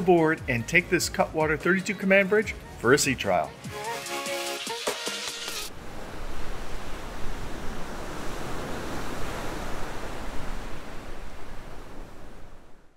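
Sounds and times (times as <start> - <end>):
music: 0.0 - 5.7
waves rushing: 5.2 - 12.9
wind: 5.7 - 12.9.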